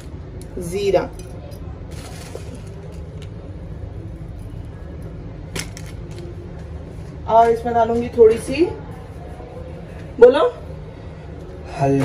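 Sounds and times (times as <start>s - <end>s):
steady low hum: 0.0s - 12.0s
plastic packet crinkling: 1.9s - 3.3s.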